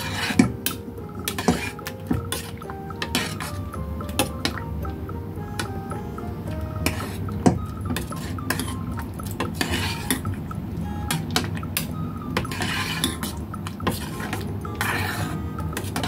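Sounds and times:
metal ladle scraping a pot: 0:00.0 - 0:00.5, 0:01.3 - 0:03.5, 0:09.6 - 0:10.2, 0:12.4 - 0:16.0.

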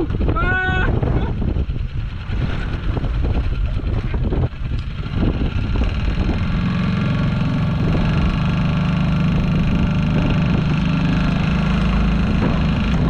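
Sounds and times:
outboard motor running: 0:00.0 - 0:13.0
wind: 0:00.0 - 0:13.0
water rushing: 0:06.4 - 0:13.0.

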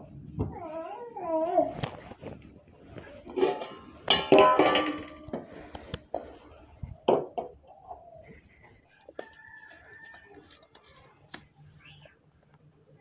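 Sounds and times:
steel pot clanking on stove: 0:03.3 - 0:06.3.

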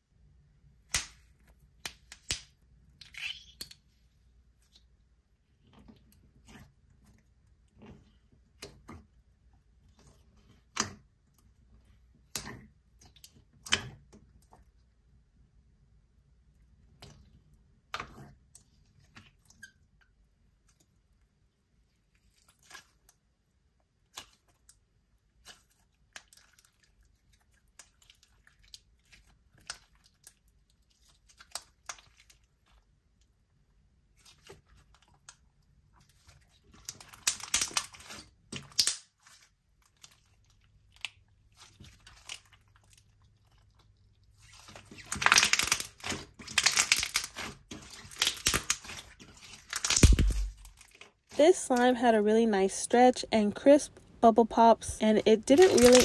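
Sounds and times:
hands squishing slime: 0:21.8 - 0:23.2, 0:23.9 - 0:33.0, 0:34.0 - 0:51.8, 0:55.4 - 0:56.0
crackling bubble pops: 0:49.8 - 0:50.7.

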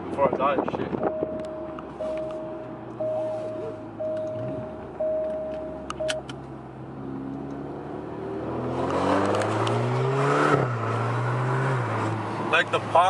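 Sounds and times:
car engine accelerating: 0:00.6 - 0:13.0
seatbelt reminder chime beeping: 0:01.0 - 0:06.3.

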